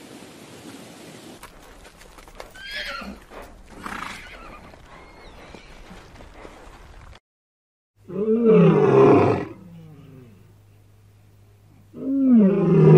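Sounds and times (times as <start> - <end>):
galloping hooves: 0.0 - 7.2
horse whinnying: 2.4 - 6.0, 8.1 - 9.6.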